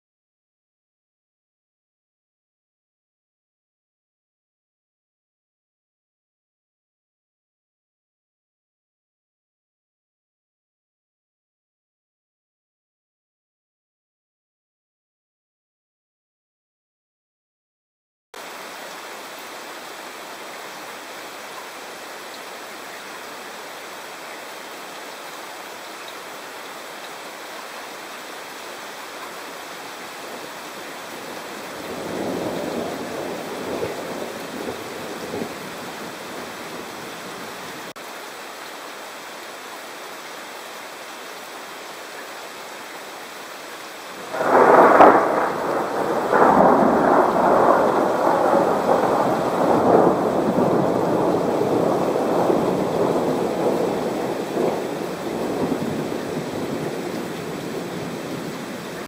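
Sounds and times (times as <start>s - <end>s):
rain hissing: 18.4s - 59.0s
thunder rumbling: 31.1s - 37.7s, 44.2s - 59.0s.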